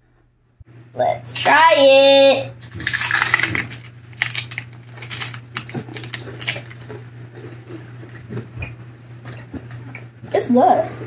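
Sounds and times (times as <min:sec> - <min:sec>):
steady low hum: 0:00.0 - 0:11.0
crunchy chewing of taco shells: 0:02.6 - 0:08.4.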